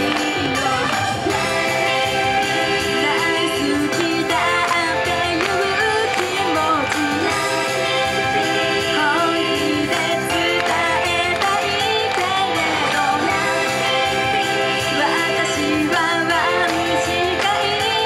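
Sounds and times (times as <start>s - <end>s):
upbeat pop backing track: 0.0s - 18.0s
women singing: 0.0s - 18.0s.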